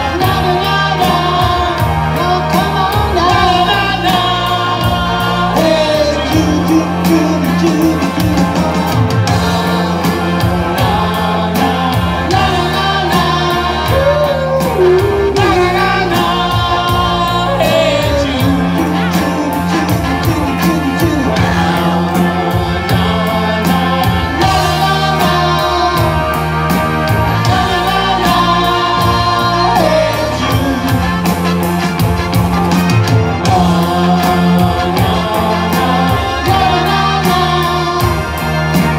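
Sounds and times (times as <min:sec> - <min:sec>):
live rock band playing: 0:00.0 - 0:38.9
person singing: 0:00.0 - 0:38.9.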